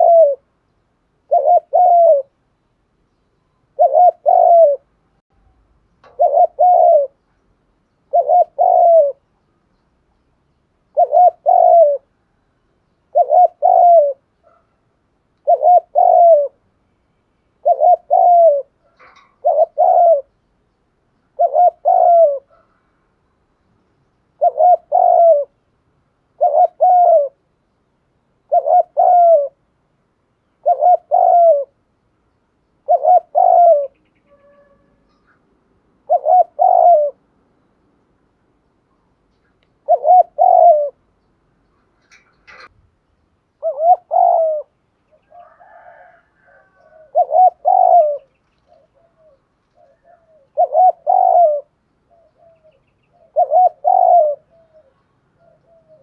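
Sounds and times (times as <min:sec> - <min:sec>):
dove cooing: 0:00.0 - 0:00.6, 0:01.2 - 0:02.4, 0:03.6 - 0:05.0, 0:06.0 - 0:07.2, 0:08.1 - 0:09.3, 0:10.9 - 0:12.4, 0:13.1 - 0:14.8, 0:15.4 - 0:16.6, 0:17.6 - 0:20.4, 0:21.3 - 0:22.9, 0:24.4 - 0:25.6, 0:26.3 - 0:27.4, 0:28.4 - 0:29.7, 0:30.5 - 0:31.8, 0:32.8 - 0:37.3, 0:39.4 - 0:41.1, 0:42.0 - 0:42.7, 0:43.6 - 0:56.0.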